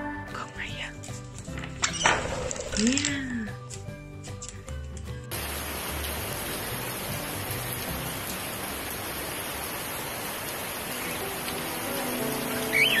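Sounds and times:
background music: 0.0s - 9.4s, 10.5s - 13.0s
heavy rain hissing: 5.3s - 13.0s.

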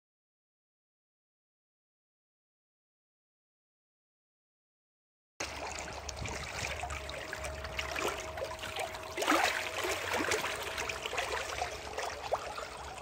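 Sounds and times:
propeller churning water: 5.4s - 13.0s.

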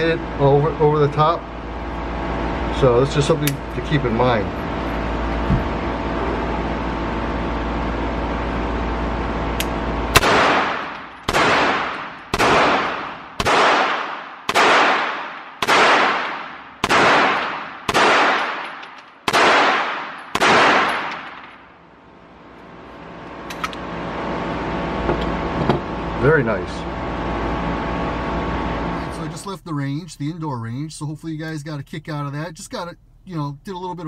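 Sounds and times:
steady hum: 0.0s - 34.0s
pistol shots echoing indoors: 10.2s - 21.5s.

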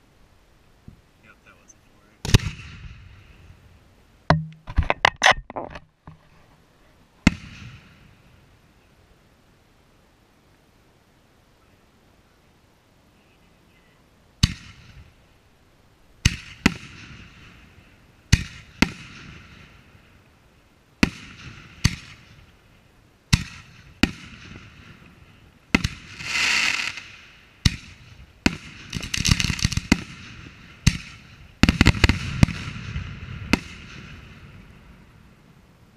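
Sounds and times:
firework crackling: 1.0s - 3.9s, 7.1s - 10.1s, 14.3s - 35.9s
firework bangs: 2.2s - 3.6s, 7.2s - 8.4s, 14.4s - 15.2s, 16.2s - 20.2s, 21.0s - 22.6s, 23.3s - 35.5s.

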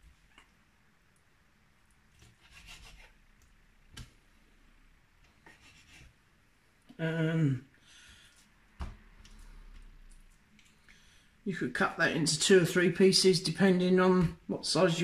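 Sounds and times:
knife scraping on chopping board: 2.2s - 3.2s.

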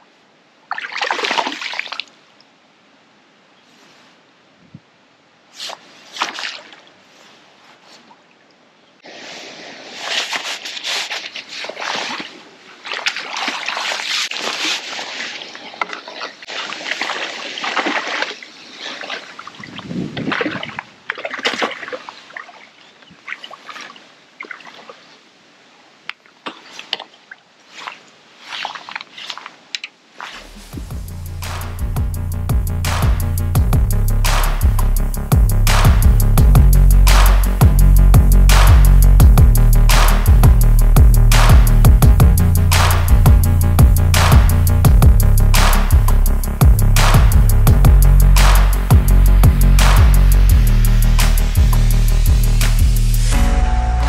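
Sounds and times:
fish thrashing in water: 9.0s - 22.6s.

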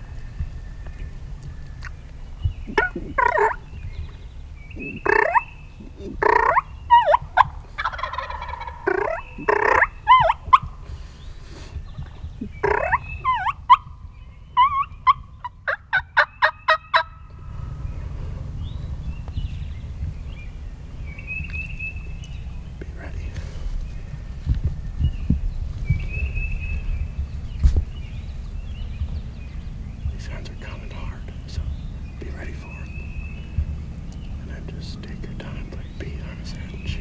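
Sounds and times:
turkey gobbling: 2.7s - 3.6s, 4.8s - 10.8s, 12.4s - 14.0s, 14.6s - 18.5s
turkey yelps: 2.7s - 3.6s, 4.8s - 10.7s, 12.4s - 13.9s, 14.6s - 17.3s.

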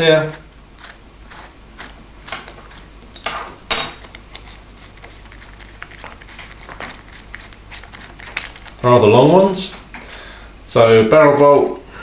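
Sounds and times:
small metal fittings clinking: 2.5s - 4.5s.

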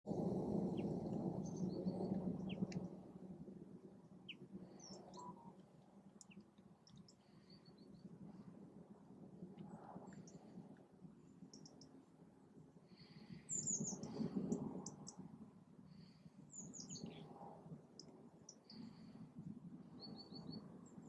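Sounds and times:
low background rumble: 0.1s - 21.0s
songbirds chirping: 0.6s - 3.0s, 4.0s - 8.5s, 11.2s - 12.0s, 12.8s - 15.2s, 15.9s - 19.2s, 19.8s - 21.0s.

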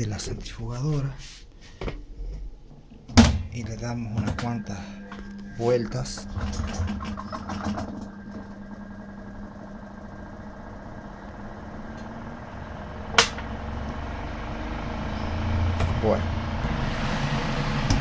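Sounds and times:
spin dryer motor humming: 2.7s - 18.0s.

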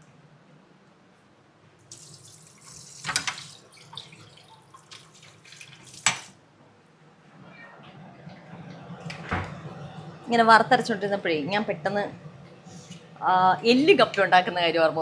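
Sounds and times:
water running from a tap: 1.9s - 6.3s.

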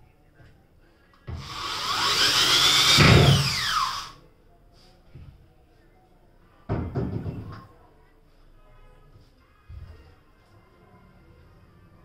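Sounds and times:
electric drill whining: 1.4s - 4.2s.

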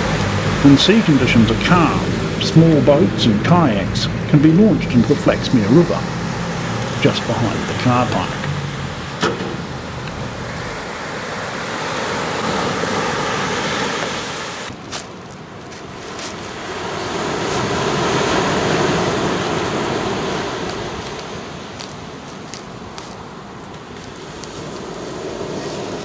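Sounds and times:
surf breaking and washing ashore: 0.0s - 26.0s.

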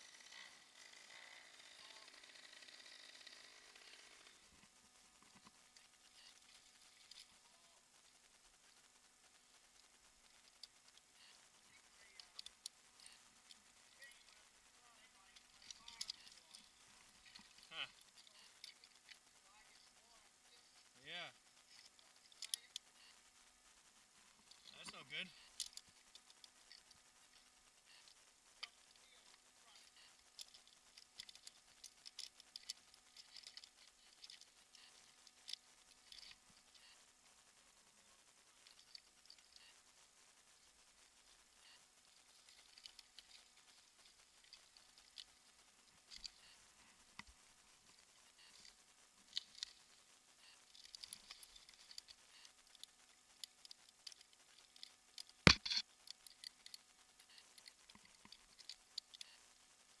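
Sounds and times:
carabiners clicking: 15.2s - 19.2s, 28.0s - 36.8s, 50.6s - 59.4s.

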